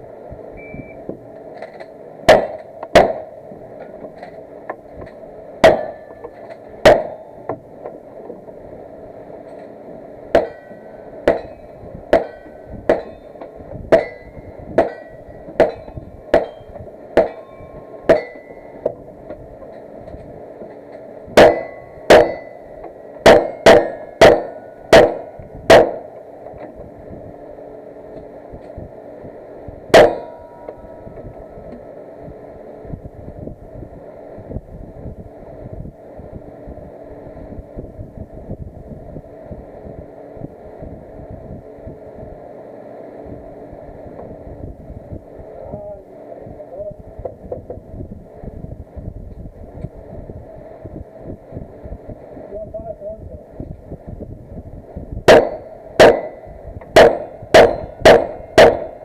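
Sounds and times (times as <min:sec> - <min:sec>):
gunshots: 0:02.3 - 0:03.3, 0:06.8 - 0:07.3, 0:23.2 - 0:26.1, 0:30.0 - 0:30.3, 0:57.0 - 0:59.0
metallic ring of steel targets: 0:05.6 - 0:07.3, 0:10.3 - 0:18.8, 0:21.4 - 0:26.1, 0:30.0 - 0:31.0, 0:55.3 - 0:59.0.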